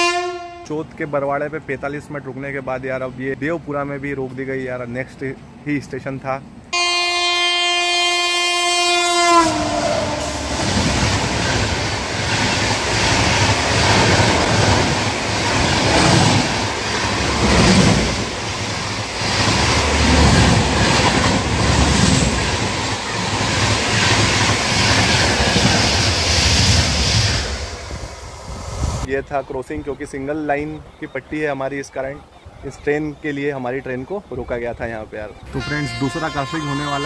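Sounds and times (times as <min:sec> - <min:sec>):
train horn blast: 0:00.0 - 0:00.7, 0:06.7 - 0:10.6, 0:35.5 - 0:37.0
train wheels rumbling on rails: 0:09.6 - 0:29.1.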